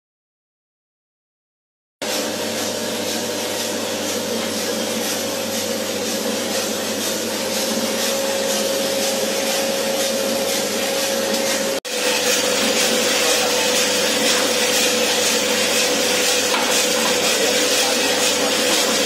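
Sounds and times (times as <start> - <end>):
coffee roaster whirring: 2.0 - 19.0.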